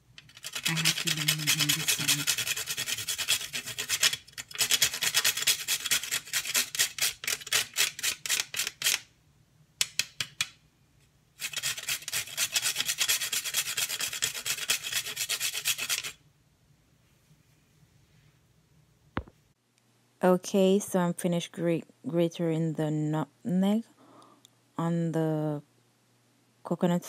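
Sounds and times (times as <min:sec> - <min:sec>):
nutmeg grating on metal grater: 0:00.2 - 0:09.1, 0:11.4 - 0:16.2.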